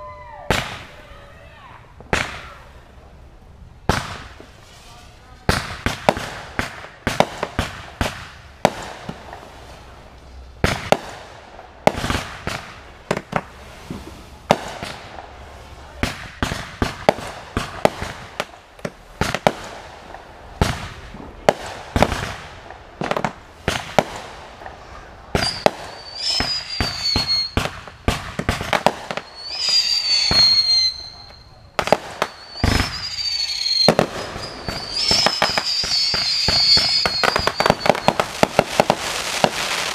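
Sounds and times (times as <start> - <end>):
whistling fireworks: 0.0 - 3.1, 3.9 - 39.9
fireworks bangs and crackles: 0.0 - 39.9.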